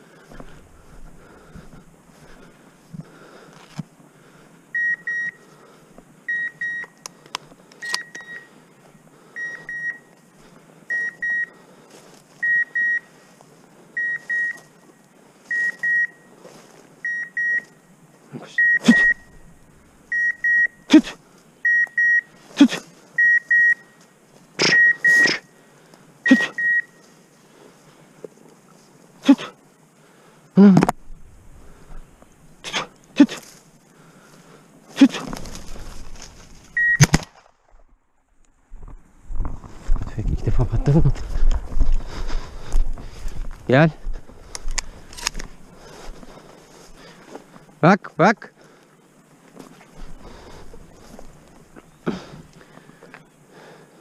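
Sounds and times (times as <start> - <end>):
footsteps crunching through dry brush: 0.0 - 3.9, 11.8 - 12.5, 13.1 - 17.0, 30.9 - 47.8, 49.3 - 53.2
collar high double beeps: 18.6 - 19.4, 24.6 - 25.5, 26.3 - 27.0, 36.8 - 37.1.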